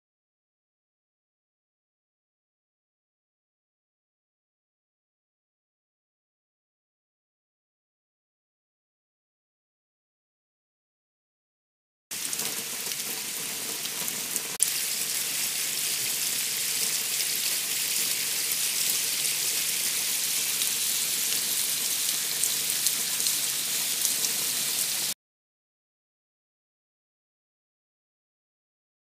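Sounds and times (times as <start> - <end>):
water splashing down a rain chain: 12.1 - 25.2.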